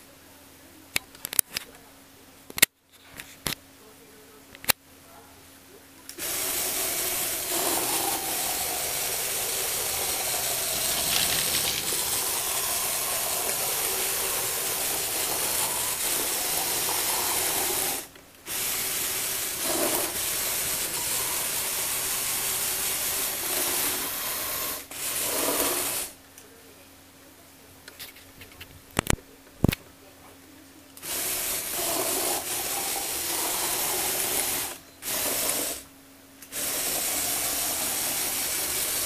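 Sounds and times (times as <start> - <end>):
toy vehicle motor whirring: 6.2 - 26.2, 31.0 - 35.9, 36.5 - 39.0.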